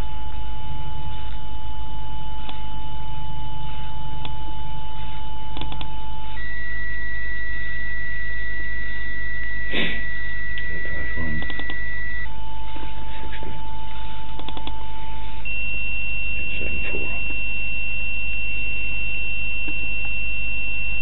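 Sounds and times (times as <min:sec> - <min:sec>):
constant low hum: 0:00.0 - 0:21.0
electronic beep tone: 0:06.3 - 0:13.0, 0:13.6 - 0:21.0.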